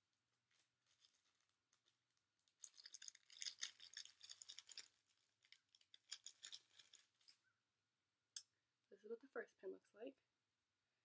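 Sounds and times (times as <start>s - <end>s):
plastic bag crinkling: 0.5s - 7.4s.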